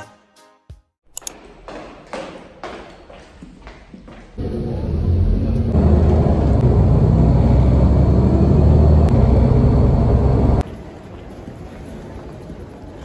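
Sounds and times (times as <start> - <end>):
bus engine and road rumble: 4.4 - 13.0.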